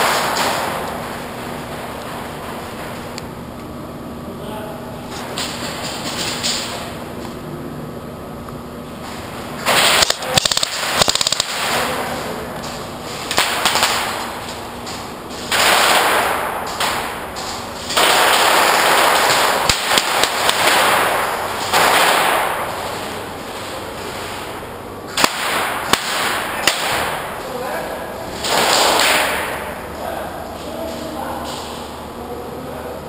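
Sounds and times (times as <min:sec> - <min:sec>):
airsoft rifles firing full-auto: 0:00.0 - 0:02.9, 0:09.6 - 0:24.3, 0:25.1 - 0:27.4, 0:28.3 - 0:29.8.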